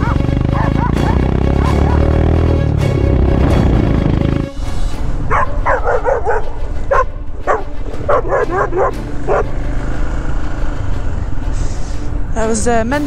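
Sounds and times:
dog barking: 0.0 - 2.2, 5.3 - 9.6
motorcycle engine running: 0.0 - 4.7, 5.3 - 11.5.

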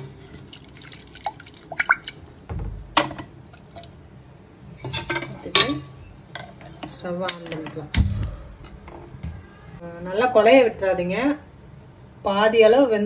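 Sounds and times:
water dripping into a pot: 0.4 - 2.3, 3.4 - 4.0.

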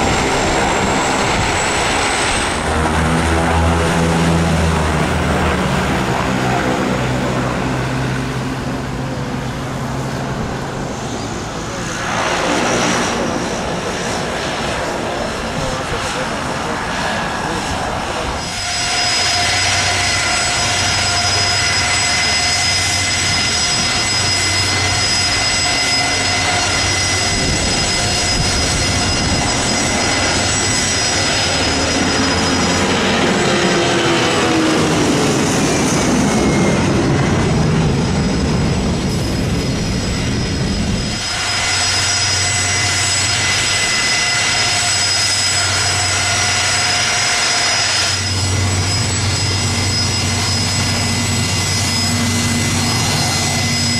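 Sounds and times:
jet airliner rumble at takeoff: 0.0 - 53.9
jet engine whine: 0.0 - 53.9.

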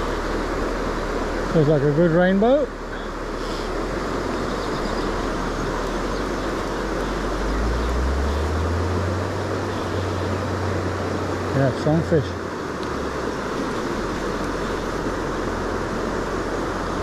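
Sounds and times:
low steady hum: 0.0 - 17.0
stream rushing over stones: 0.0 - 17.0.

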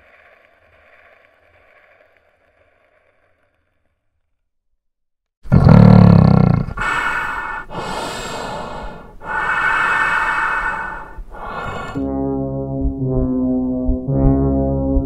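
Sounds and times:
growling rasping breaths: 6.6 - 12.1.

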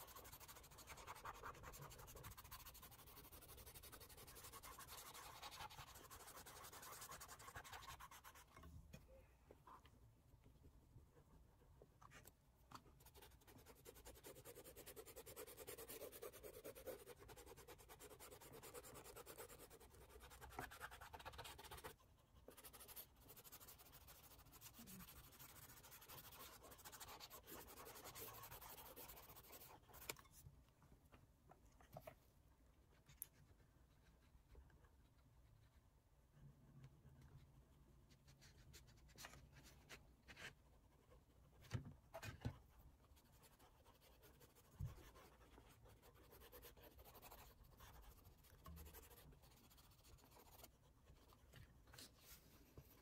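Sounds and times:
pastel rubbing on paper: 0.0 - 8.5, 13.0 - 30.2, 43.2 - 53.0.

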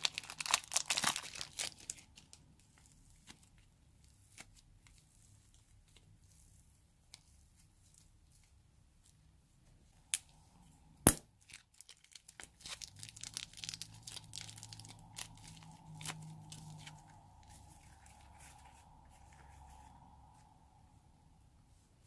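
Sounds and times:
slime balloon crinkling and crackling: 0.0 - 9.2, 11.1 - 20.4
sharp snap: 11.1 - 11.3.

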